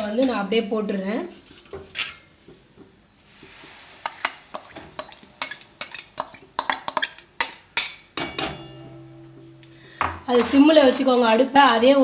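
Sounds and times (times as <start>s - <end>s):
brief sizzle in a wok: 3.3s - 4.6s.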